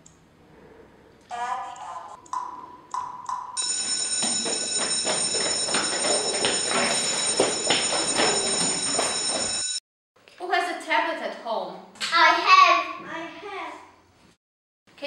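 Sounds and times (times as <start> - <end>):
electric bell ringing: 3.3 - 9.8.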